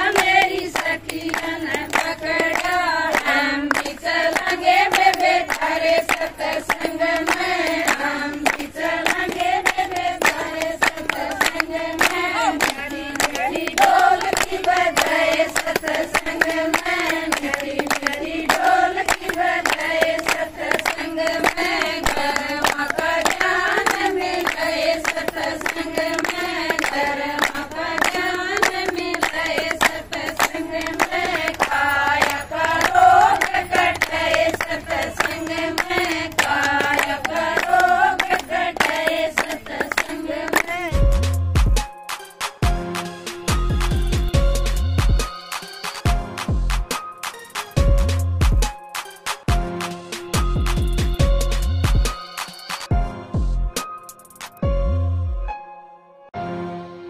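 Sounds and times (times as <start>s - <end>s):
women singing folk song: 0.0s - 41.1s
rhythmic hand-clapping: 0.0s - 52.9s, 54.2s - 54.6s.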